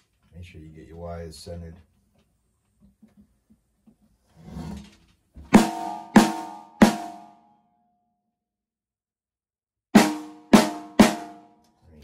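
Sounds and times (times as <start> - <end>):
snare drum hits: 5.5 - 7.4, 10.0 - 11.5.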